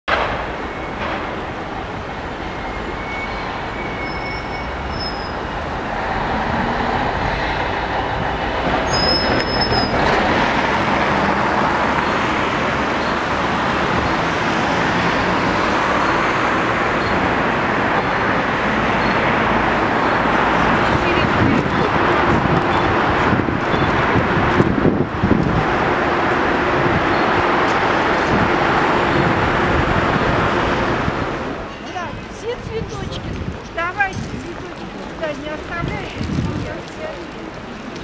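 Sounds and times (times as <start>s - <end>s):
cars and trucks driving past: 0.1s - 38.0s
high-pitched squeals: 2.3s - 5.6s, 7.1s - 10.2s.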